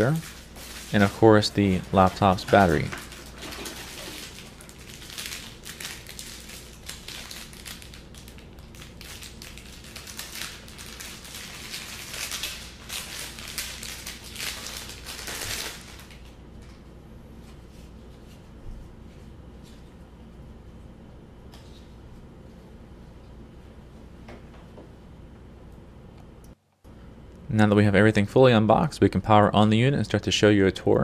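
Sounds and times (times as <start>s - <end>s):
packaging crinkling: 0.0s - 16.8s.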